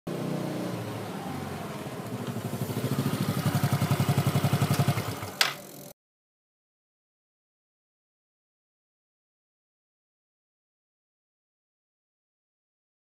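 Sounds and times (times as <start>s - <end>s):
motorcycle engine running: 0.1s - 6.0s.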